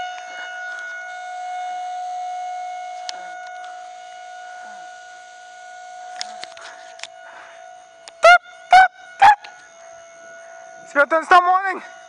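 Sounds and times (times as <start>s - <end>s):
outdoor warning siren: 0.0s - 12.0s.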